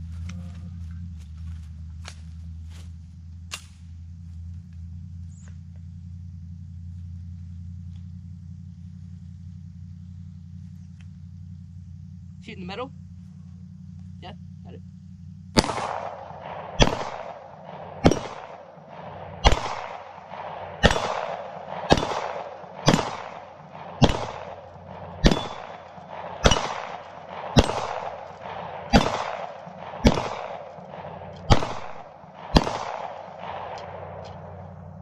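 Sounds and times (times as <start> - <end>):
pistol shots with echo: 15.6 - 34.9.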